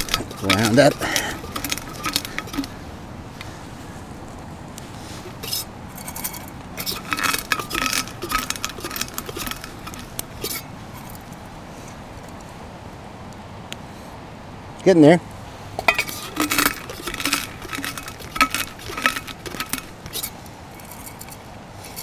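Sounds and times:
coffee beans crunching: 0.0 - 2.8, 5.2 - 11.1, 15.8 - 21.4
metal cups clinking: 0.0 - 2.8, 5.2 - 11.2, 15.8 - 22.0.

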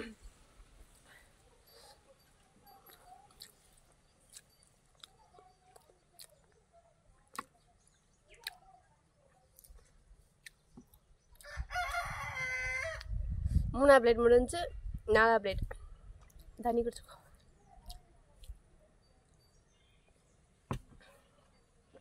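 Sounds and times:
chewing and wet mouth clicks: 2.8 - 6.6, 8.3 - 8.7, 9.5 - 11.5, 17.4 - 18.6
rooster crowing: 11.4 - 13.1.

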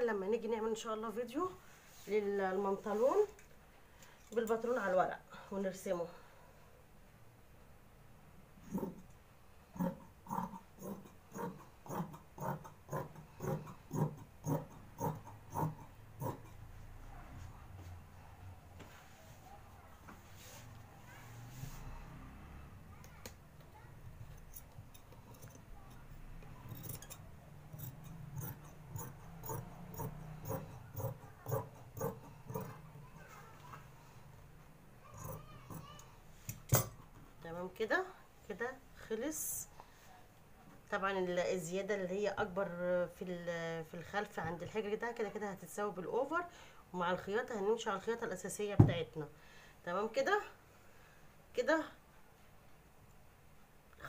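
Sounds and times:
scissors snipping fabric: 26.6 - 32.8.

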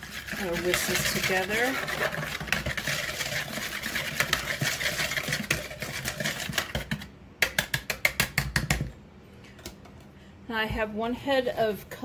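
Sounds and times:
whisk clicking against bowl: 0.0 - 8.8.

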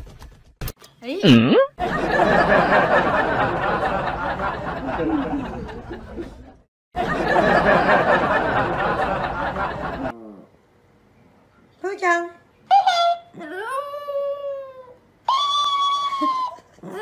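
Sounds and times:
crowd laughing and chattering: 1.8 - 10.1.

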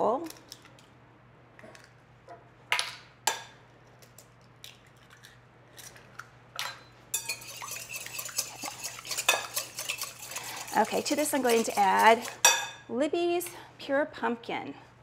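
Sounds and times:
whisk beating eggs in glass bowl: 7.2 - 12.6.

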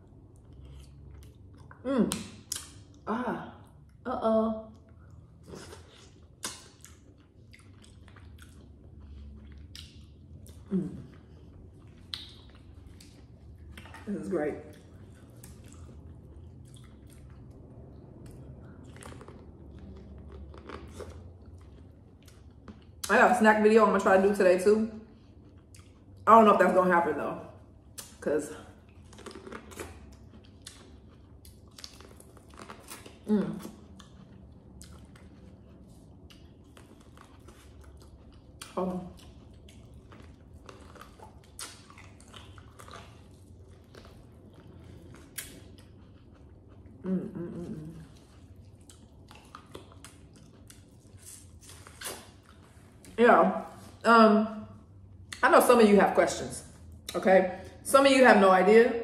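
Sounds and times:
person chewing corn on the cob: 0.0 - 3.0, 4.7 - 23.1, 25.1 - 26.2, 28.7 - 53.2
wet mouth clicks and smacks: 0.4 - 3.0, 6.4 - 8.6, 9.2 - 10.6, 11.8 - 14.0, 48.8 - 52.4
person humming mm: 47.0 - 48.0.

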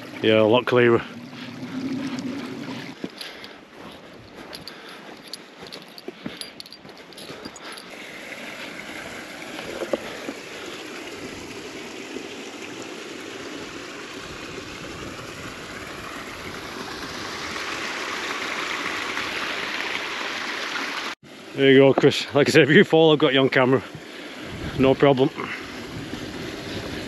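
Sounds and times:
stream rushing water: 0.0 - 27.0.

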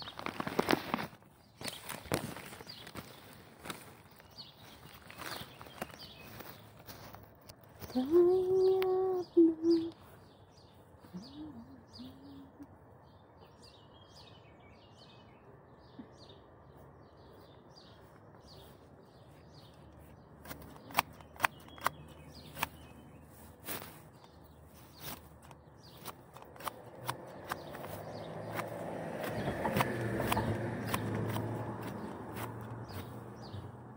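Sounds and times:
small birds chirping: 0.0 - 33.9
sharp snaps from garden work: 19.7 - 33.7.

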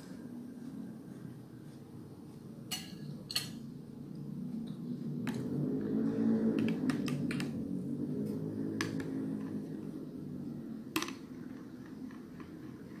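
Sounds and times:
spoon clinking against glass: 2.7 - 3.6.

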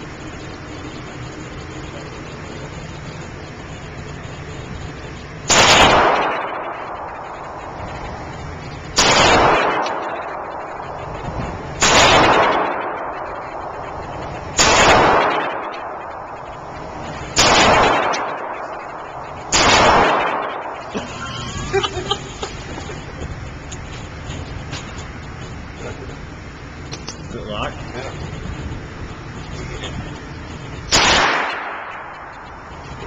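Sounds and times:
pistol shots echoing indoors: 5.5 - 7.6, 9.0 - 10.8, 11.8 - 14.0, 14.6 - 16.5, 17.4 - 20.9, 30.9 - 32.4.

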